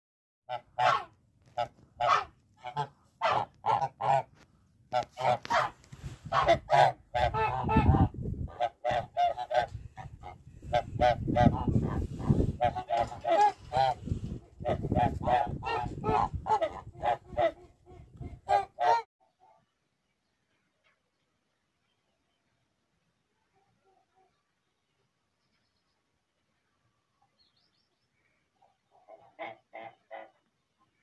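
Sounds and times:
geese honking: 0.5 - 19.6, 28.6 - 30.5.

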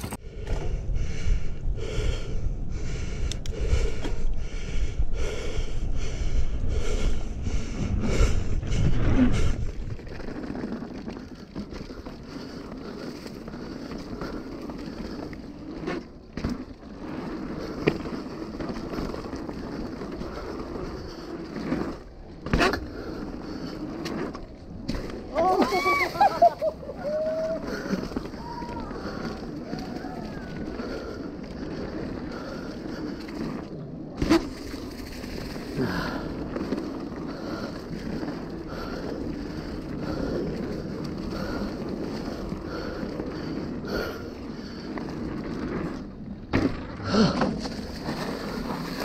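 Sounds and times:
hard rhythmic breathing: 0.0 - 9.9
wind buffeting camera: 0.0 - 25.7
bike tyre and frame rumble: 0.0 - 49.0.

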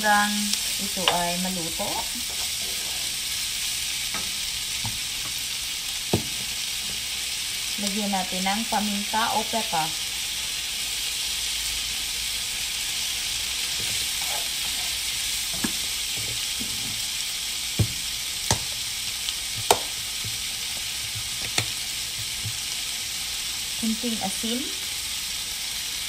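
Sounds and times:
food sizzling in a frying pan: 0.0 - 26.0
wooden utensil knocking on pan: 6.1 - 6.5, 17.8 - 18.7, 19.6 - 20.4.

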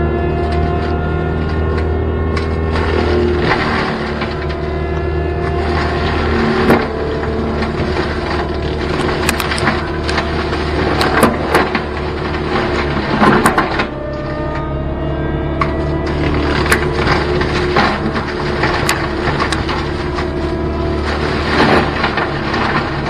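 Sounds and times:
diesel engine under load: 0.0 - 23.0
wood cracking and snapping: 0.3 - 14.7, 15.6 - 23.0.

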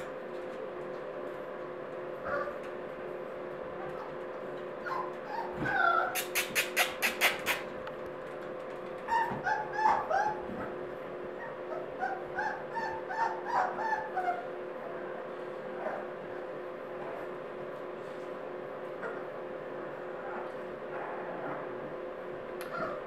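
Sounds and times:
puppies whimpering and yipping: 4.8 - 7.7, 9.0 - 10.8, 11.4 - 14.6, 22.6 - 23.0.

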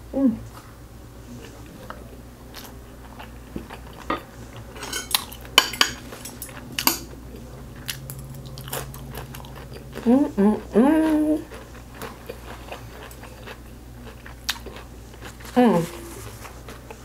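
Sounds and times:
utensils clinking against plates: 4.0 - 7.2.

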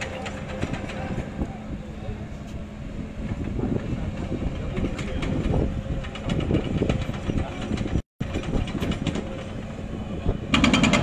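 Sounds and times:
outdoor rumble: 0.0 - 11.0
knocks and clatter: 3.3 - 9.5, 10.5 - 11.0.

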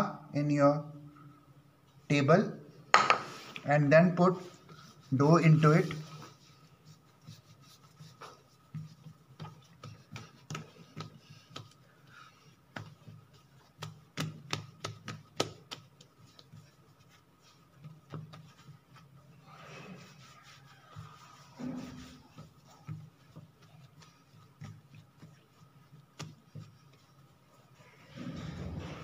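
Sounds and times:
taps and pats on dough: 2.9 - 3.4, 8.0 - 19.0, 22.0 - 27.3
hands rubbing dough: 2.9 - 29.0.

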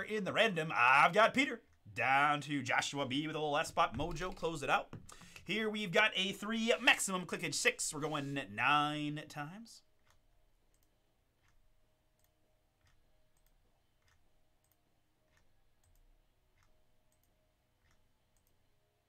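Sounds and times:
faint steady hum: 0.0 - 19.0
computer mouse clicks: 10.0 - 11.6, 12.2 - 18.6.

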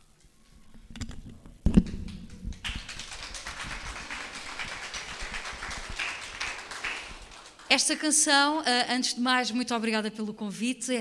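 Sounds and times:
audience applauding: 1.9 - 7.8.

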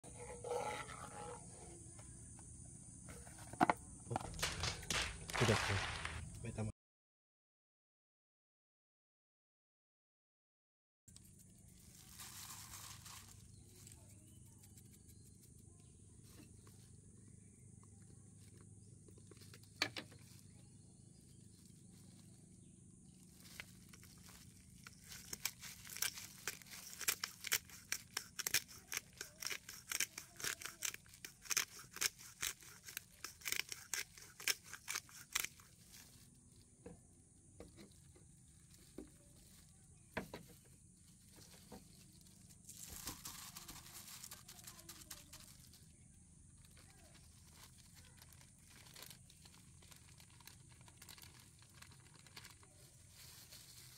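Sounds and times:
pepper grinder crunching: 23.4 - 36.3, 42.6 - 45.8.

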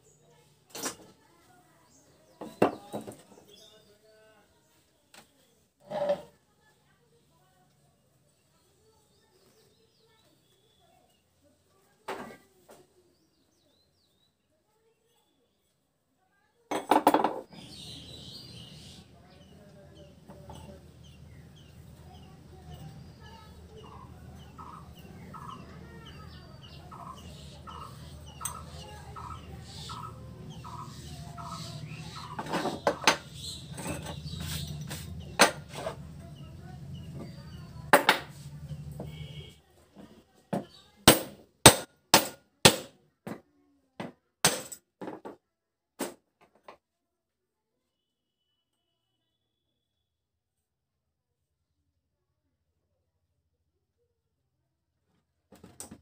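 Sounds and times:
hammer striking metal: 41.1 - 42.9.

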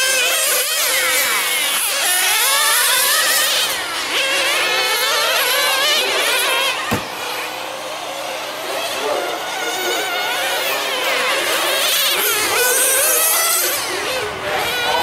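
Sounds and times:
small engines buzzing at high pitch: 0.0 - 15.0
short knock: 6.9 - 7.1.

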